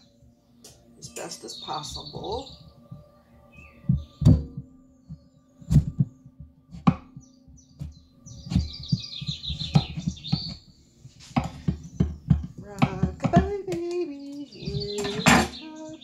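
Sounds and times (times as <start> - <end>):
high chirping: 0.0 - 16.0
thuds on wooden cutting board: 11.4 - 13.6.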